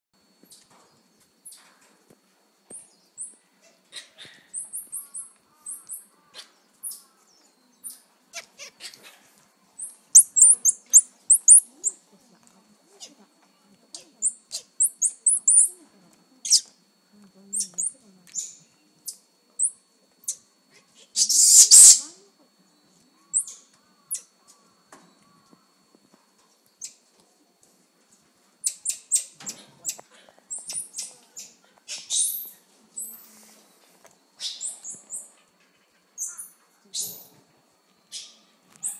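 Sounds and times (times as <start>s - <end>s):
monkeys chirping: 9.8s - 12.0s, 13.9s - 15.8s, 16.4s - 16.7s, 21.0s - 22.1s, 23.3s - 24.3s, 28.6s - 33.2s, 34.4s - 37.3s, 38.1s - 38.9s.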